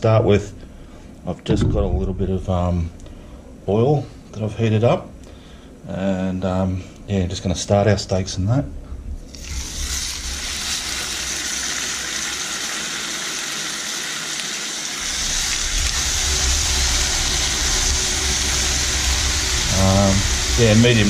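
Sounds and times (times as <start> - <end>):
steaks sizzling in a frying pan: 9.4 - 21.0.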